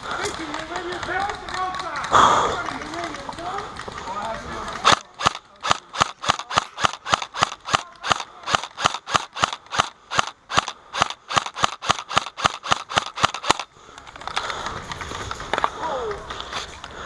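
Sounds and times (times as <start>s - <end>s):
airsoft rifle firing shots: 4.8s - 13.7s.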